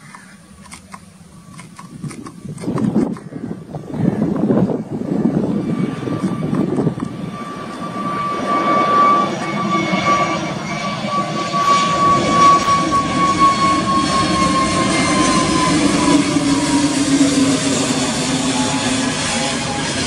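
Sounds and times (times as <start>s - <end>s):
jet airliner climbing overhead: 0.0s - 20.0s.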